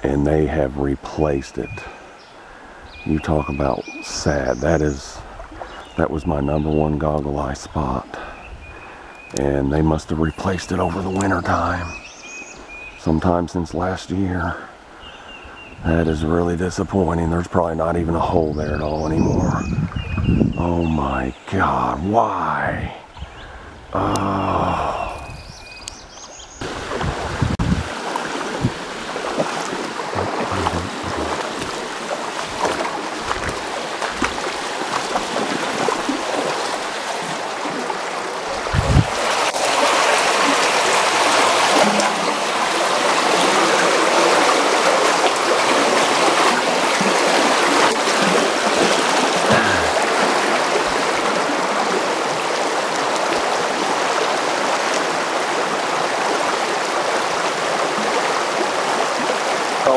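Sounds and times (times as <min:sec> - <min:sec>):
mountain stream water rushing: 0:21.5 - 0:59.9
bumps on microphone: 0:30.1 - 0:31.8.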